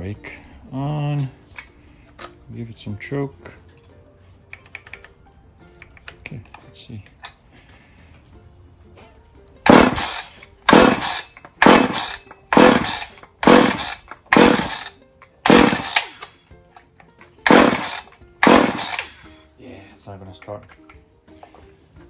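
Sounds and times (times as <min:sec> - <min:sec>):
chainsaw pull starter cranking: 0:09.7 - 0:16.3, 0:17.4 - 0:19.3.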